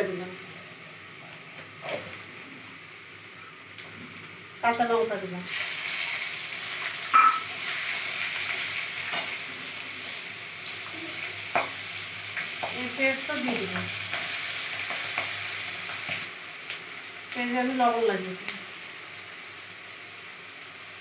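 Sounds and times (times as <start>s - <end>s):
food sizzling in hot oil: 4.3s - 21.0s.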